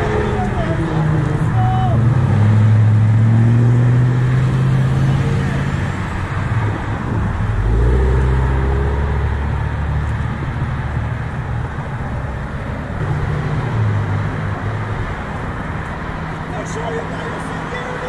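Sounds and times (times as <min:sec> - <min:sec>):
car accelerating away: 0:00.0 - 0:11.3
steady traffic hum: 0:00.0 - 0:18.0.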